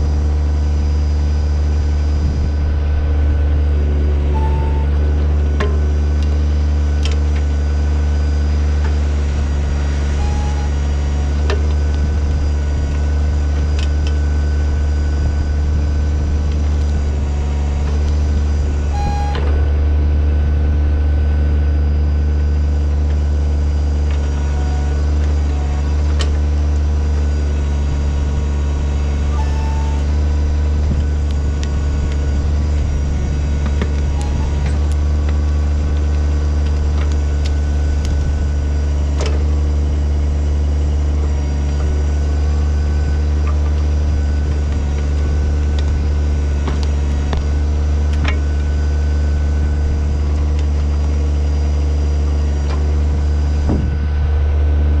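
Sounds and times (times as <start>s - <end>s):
diesel engine running under load: 0.0s - 55.0s
short high squeaks: 4.2s - 5.1s, 10.1s - 10.9s, 18.8s - 19.7s, 29.2s - 30.7s, 34.0s - 35.2s.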